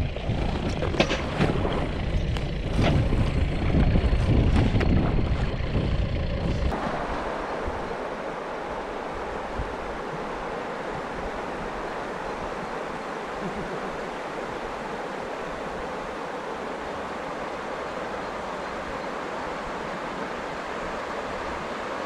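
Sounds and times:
river water rushing over weir: 6.7 - 22.0.

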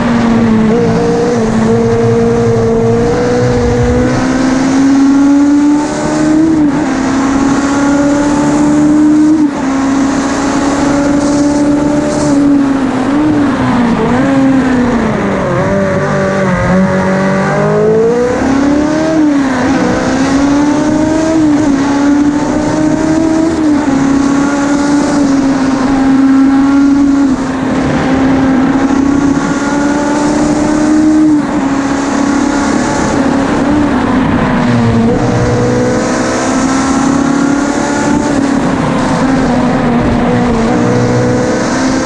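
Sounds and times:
wind rushing: 0.0 - 7.6
racing engine at high revs: 0.0 - 42.0.

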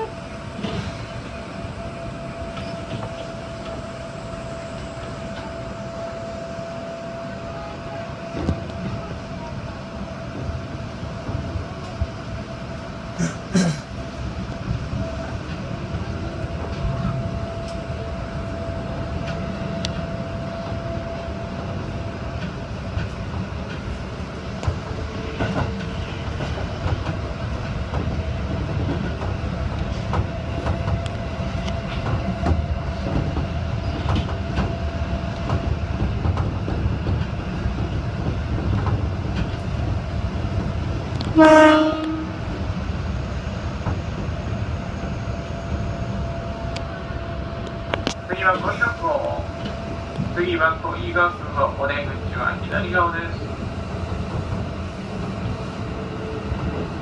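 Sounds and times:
train horn blast: 0.0 - 0.3, 41.2 - 42.4
train rumble with wheel clicks: 0.0 - 57.0.

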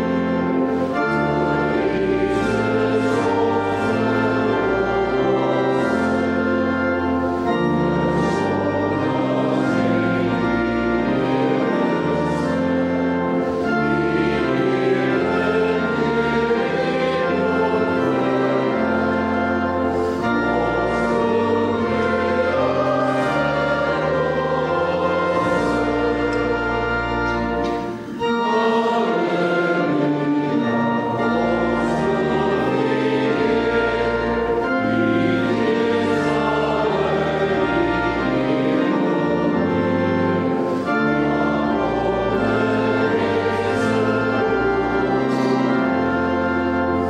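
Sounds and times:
congregation singing a hymn: 0.0 - 47.0
instrumental held chords: 0.0 - 47.0.

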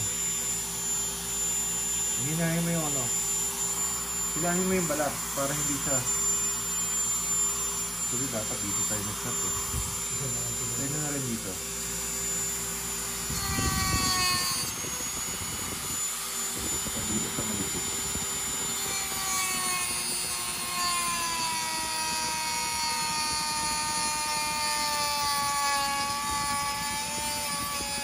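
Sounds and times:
rotary tool whining: 0.0 - 28.0
cutting disc rasping on bone: 16.7 - 28.0.

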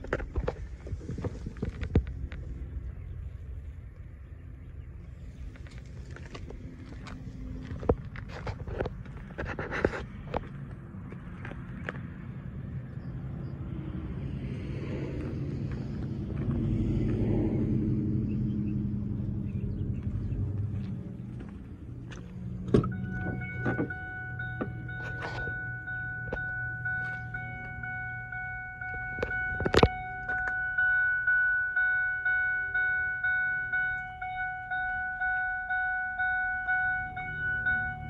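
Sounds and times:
car door warning chime: 22.7 - 38.0.

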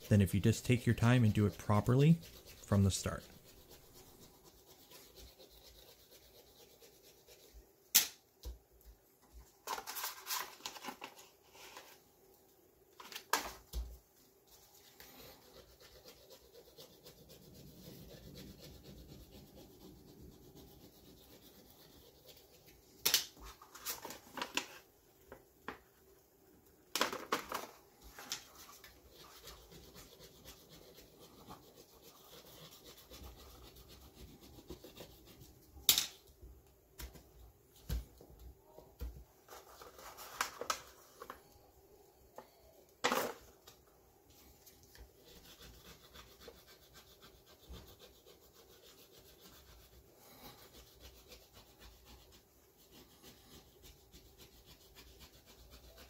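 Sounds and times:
gloved hands rubbing sheet: 0.0 - 7.8
faint steady background: 0.0 - 56.0.

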